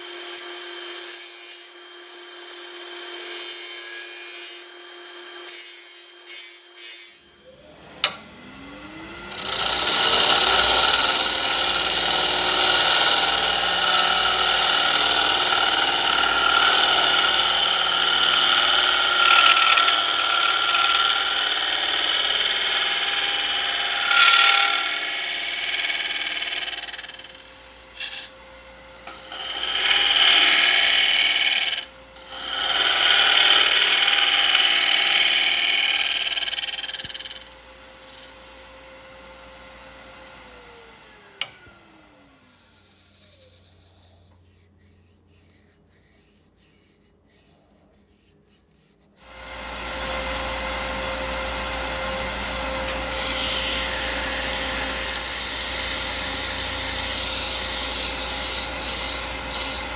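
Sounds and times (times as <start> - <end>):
lathe whine: 7.1 - 44.5, 49.2 - 59.9
gouge scraping wood on lathe: 9.3 - 28.3, 29.1 - 38.6, 52.9 - 59.9.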